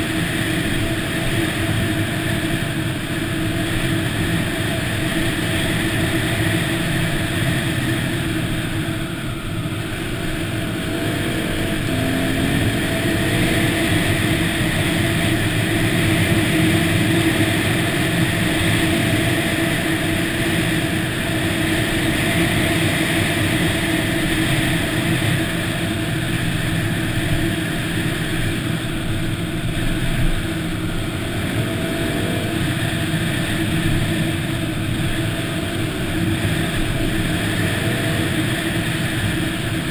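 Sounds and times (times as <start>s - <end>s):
dirt bike engine running: 0.0s - 39.9s.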